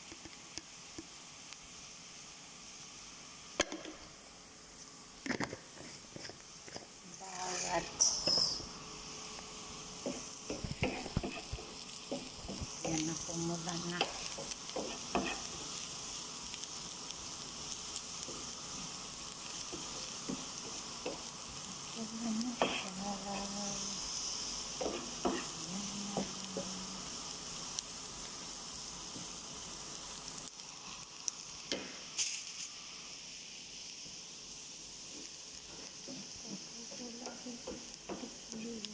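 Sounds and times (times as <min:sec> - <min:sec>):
onions sizzling in oil: 0:00.0 - 0:38.9
wooden spoon scraping a pan: 0:05.3 - 0:08.7, 0:10.0 - 0:15.9, 0:22.6 - 0:25.6.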